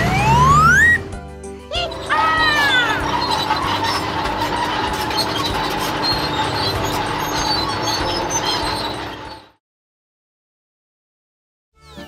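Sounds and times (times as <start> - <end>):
cartoon excavator engine rattling: 0.0 - 9.6.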